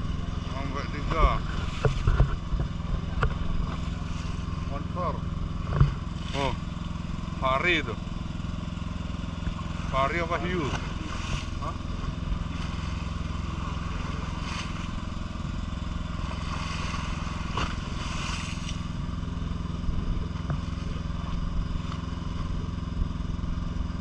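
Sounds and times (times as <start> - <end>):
boat motor droning: 0.0 - 24.0.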